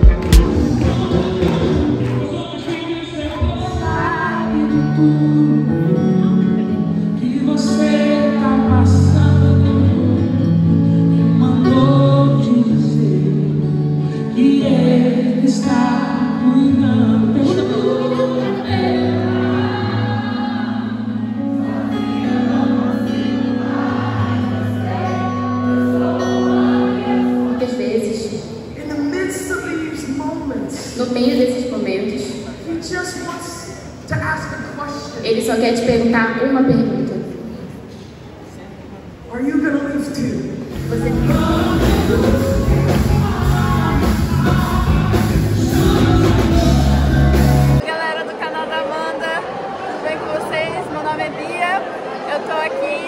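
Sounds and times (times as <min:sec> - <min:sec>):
heavy bass line: 0:00.0 - 0:02.0, 0:40.8 - 0:47.8
drums: 0:00.0 - 0:02.2, 0:40.6 - 0:47.8
person singing: 0:00.0 - 0:27.6, 0:40.7 - 0:47.9
live band playing: 0:00.0 - 0:28.8, 0:40.4 - 0:47.9
guitar: 0:00.0 - 0:39.2, 0:40.2 - 0:48.1.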